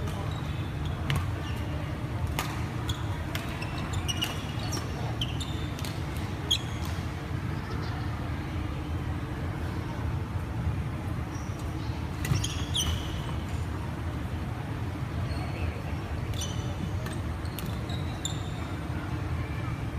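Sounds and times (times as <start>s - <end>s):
sports hall rumble: 0.0s - 19.9s
sneakers squeaking on wooden court: 2.8s - 7.0s, 11.3s - 13.5s, 16.3s - 18.7s.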